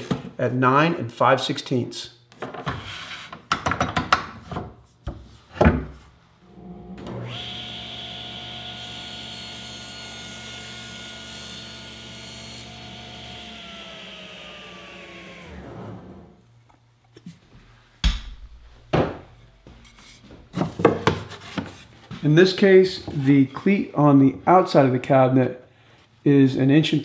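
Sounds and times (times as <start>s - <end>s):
table saw cutting plywood: 6.5s - 16.4s
saw blade winding down whine: 7.0s - 16.4s.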